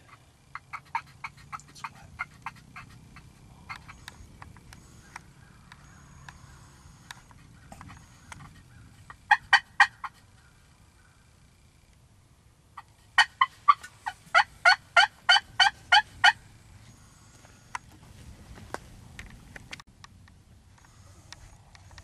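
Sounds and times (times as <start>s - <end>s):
turkey yelps: 0.0s - 4.2s, 7.4s - 10.6s, 12.8s - 16.4s.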